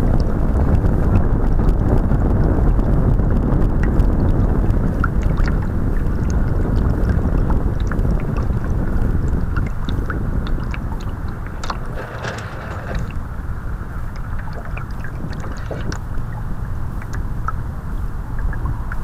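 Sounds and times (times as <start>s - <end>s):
water rushing against hull: 0.0s - 19.0s
wind buffeting microphone: 0.0s - 19.0s
small ticks and splashes: 3.8s - 17.7s.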